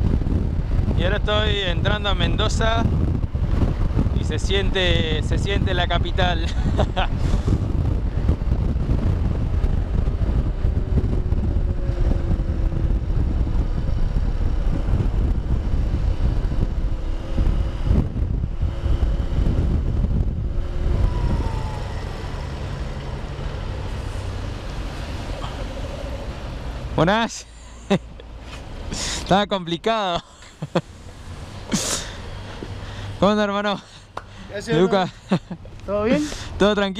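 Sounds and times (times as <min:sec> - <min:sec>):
wind rush on microphone: 0:00.0 - 0:27.0
road rumble: 0:00.0 - 0:36.9.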